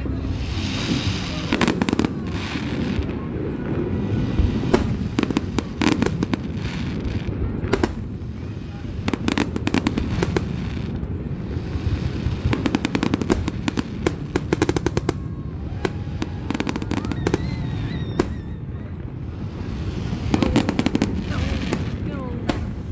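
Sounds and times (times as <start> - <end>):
continuous low rumble: 0.0 - 22.9
firework bang: 0.1 - 3.3, 4.2 - 8.2, 11.8 - 18.6.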